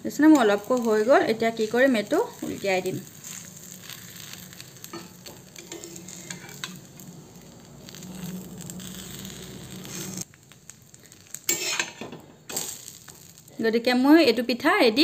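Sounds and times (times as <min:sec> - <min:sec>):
flatbread sizzling on iron pan: 0:00.0 - 0:14.0
metal spatula scraping and tapping: 0:04.9 - 0:06.8, 0:11.5 - 0:12.2.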